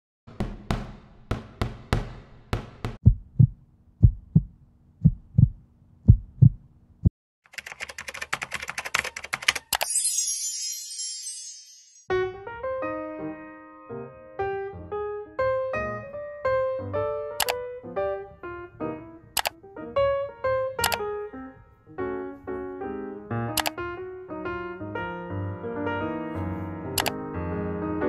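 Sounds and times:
fast clicking: 7.5 - 9.9
piano music: 9.2 - 28.0
high shimmering chime: 9.9 - 12.1.

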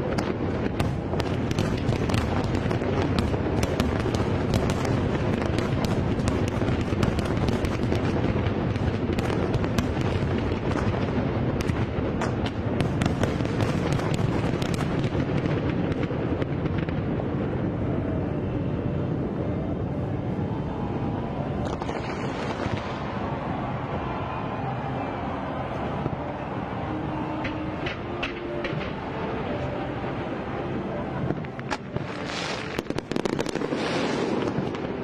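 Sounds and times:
fireworks bursts rumbling: 0.0 - 35.0
fireworks crackling: 0.0 - 35.0.

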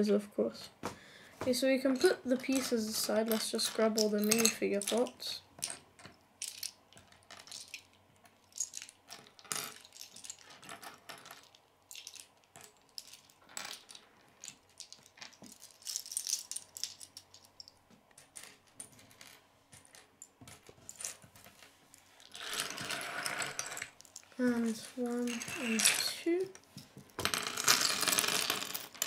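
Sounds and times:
plastic pieces clicking on wood: 2.0 - 21.3.

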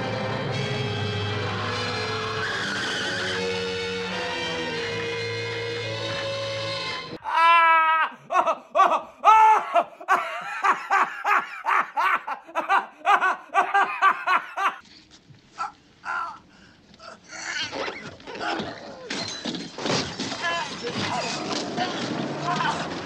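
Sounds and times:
man yelling: 7.2 - 9.8
man belly laughing: 7.2 - 14.8.

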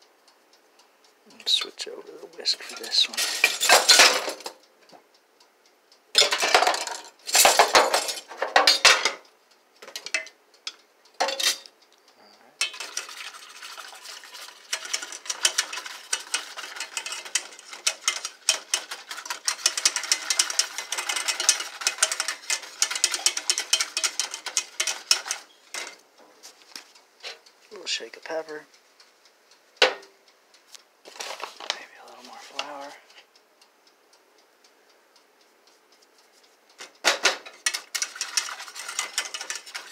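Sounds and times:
utensils clattering: 2.4 - 4.6, 6.2 - 9.2, 11.2 - 11.7, 12.6 - 26.0, 36.8 - 39.9
whisk clicking against bowl: 12.6 - 26.0, 37.4 - 39.9.

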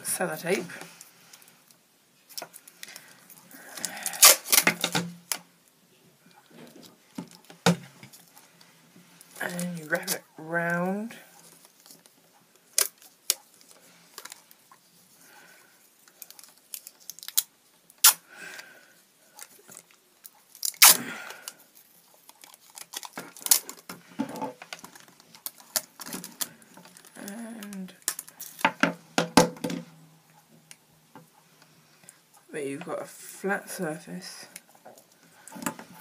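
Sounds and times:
sticky tape ripping off roll: 3.8 - 5.4, 16.5 - 18.2, 20.6 - 21.1.

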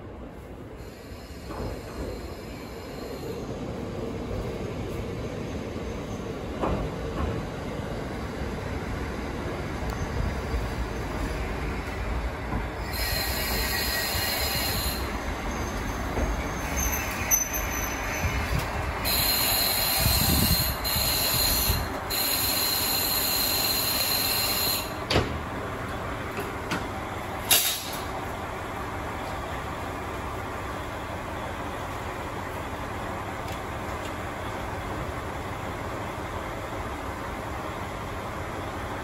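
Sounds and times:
railcar engine rumbling: 0.0 - 39.0
brakes squealing: 12.7 - 25.0.

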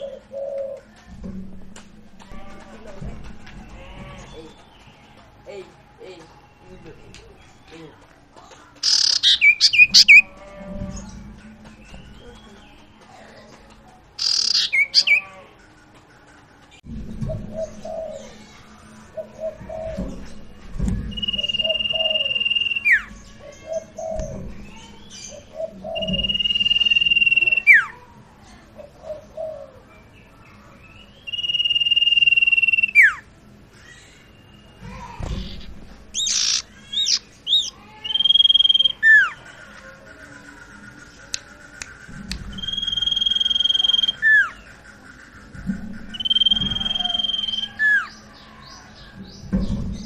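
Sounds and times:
rapid bird chirp flurries: 8.8 - 10.2, 14.2 - 15.3, 21.1 - 24.2, 25.8 - 27.9, 31.2 - 33.2, 35.4 - 48.4
songbird singing high whistles: 8.8 - 10.2, 14.2 - 15.2, 21.1 - 23.1, 26.0 - 27.9, 31.1 - 33.2, 36.2 - 39.4, 41.8 - 44.6, 46.1 - 48.2.

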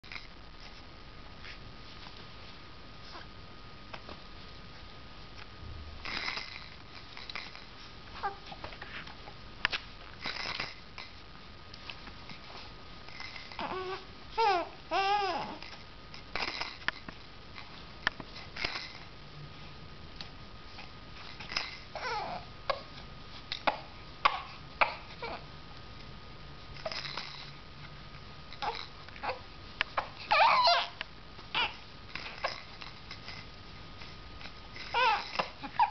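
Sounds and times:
baby cooing and babbling: 8.2 - 8.6, 13.5 - 15.8, 21.9 - 22.8, 24.2 - 25.4, 28.6 - 29.4, 30.0 - 32.7, 34.8 - 35.9.

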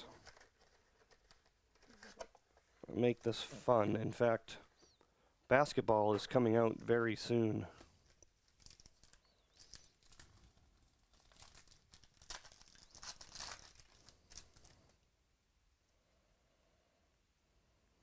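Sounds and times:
foil wrapper tearing and crinkling: 8.0 - 14.9.

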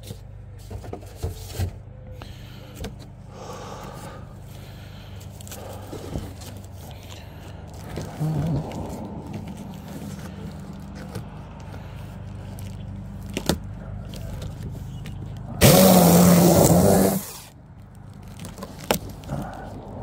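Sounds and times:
electric saw running: 15.6 - 17.5.

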